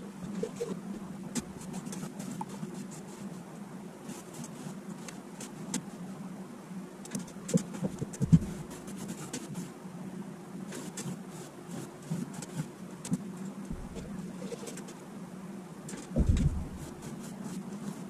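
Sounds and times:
steady low hum: 0.0 - 18.0
rag scrubbing wooden ceiling: 15.9 - 18.0.

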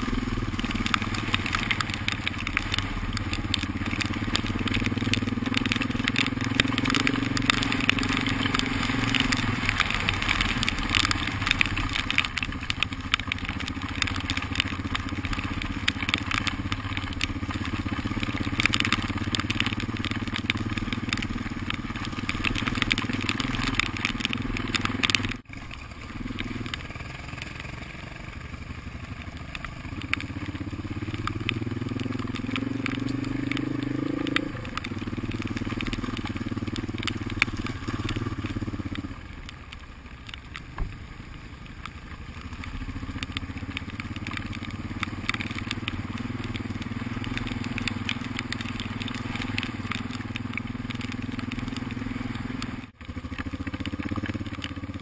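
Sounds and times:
tyres crunching on gravel: 0.0 - 27.9, 28.6 - 55.0
motorcycle engine running: 0.0 - 55.0.

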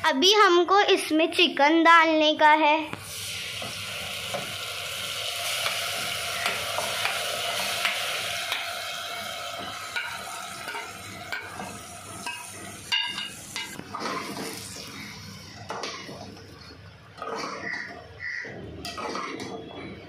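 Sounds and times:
chicken sizzling in hot oil: 3.0 - 15.5.

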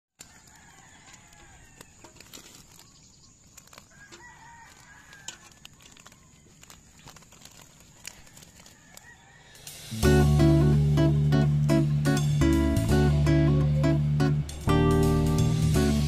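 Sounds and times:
chickens clucking and crowing: 0.2 - 2.8, 3.6 - 6.8, 7.8 - 12.0.

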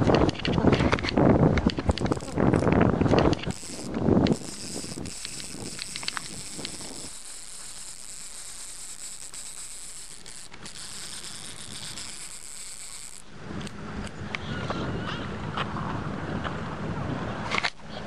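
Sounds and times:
fishing reel clicking buzz: 1.7 - 13.8.

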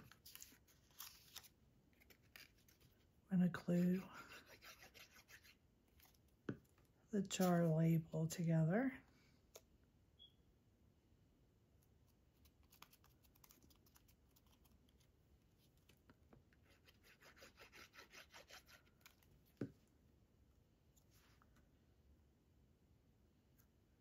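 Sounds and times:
paper rustling: 0.0 - 3.0.

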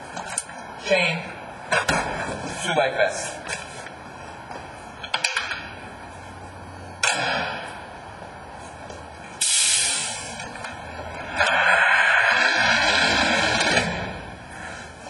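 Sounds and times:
bursts of hissing: 9.4 - 10.4.

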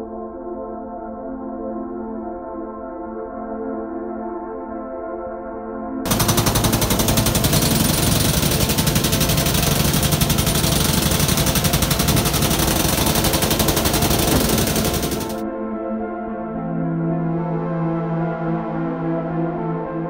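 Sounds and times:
pneumatic hammer hammering: 6.1 - 15.4.

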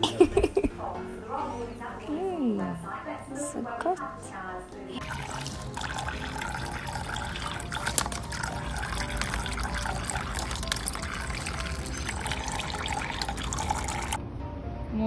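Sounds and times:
water trickling into tub: 5.0 - 14.2.

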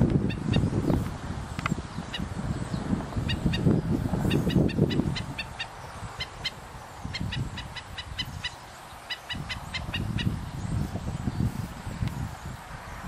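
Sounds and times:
wind rumble on microphone: 0.0 - 13.0
bird yapping alarm calls: 3.2 - 10.4.

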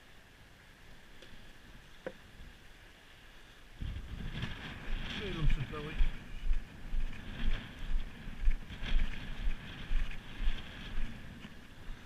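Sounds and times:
wind hiss: 0.0 - 12.0
choppy sea: 0.2 - 12.0
wind buffeting microphone: 3.8 - 12.0.

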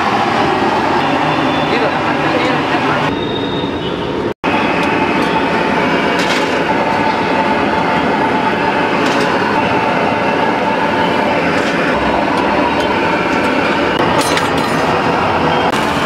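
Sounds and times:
steel skimmer clinking on vessels: 12.4 - 15.0.

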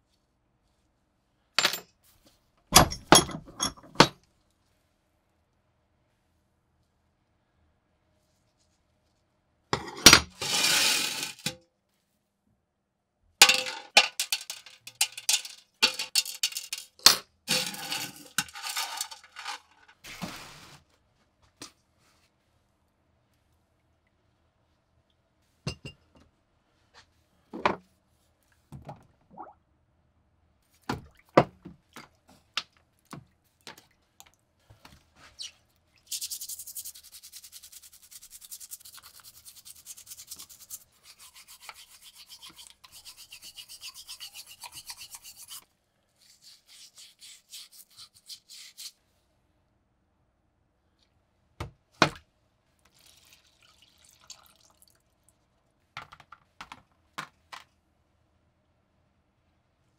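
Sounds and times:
toothbrush scrubbing metal: 36.0 - 45.6, 46.2 - 49.0.

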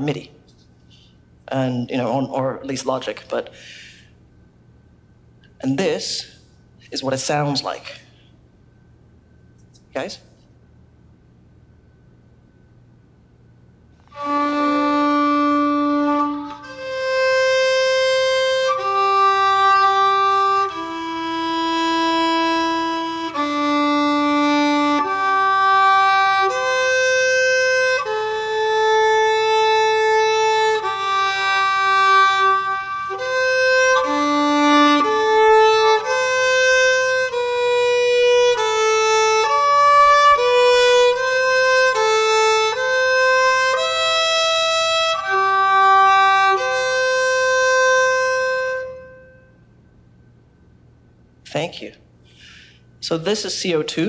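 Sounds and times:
violin bowing slow melody: 14.0 - 49.7.

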